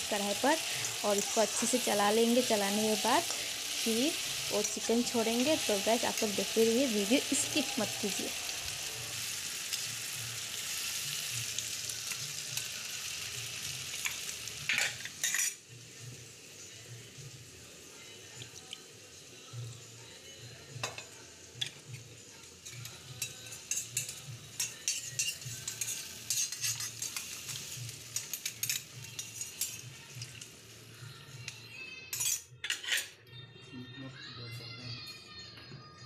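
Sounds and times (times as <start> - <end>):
faint sizzle: 0.0 - 32.3
metal spatula scraping a pan: 23.2 - 29.8, 32.1 - 33.1.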